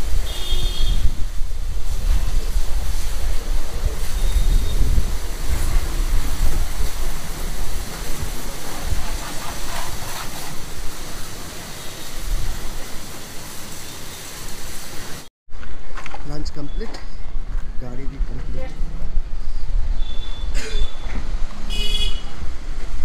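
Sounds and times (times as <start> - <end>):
high-pressure water spray hissing: 0.0 - 15.3.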